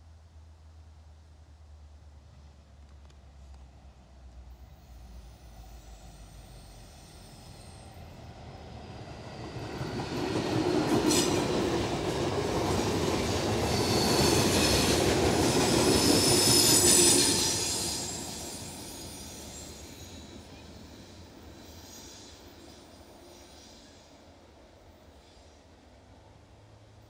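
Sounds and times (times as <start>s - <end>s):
train wheels rumbling on rails: 4.3s - 25.6s
high-pitched wheel squeal: 13.6s - 14.9s.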